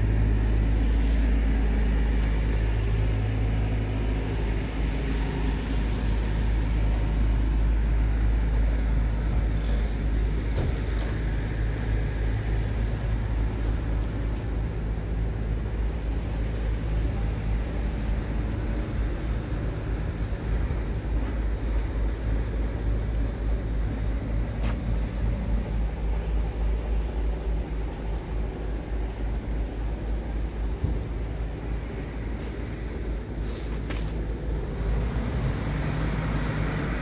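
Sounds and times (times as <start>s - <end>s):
diesel engine idling: 0.0s - 37.0s.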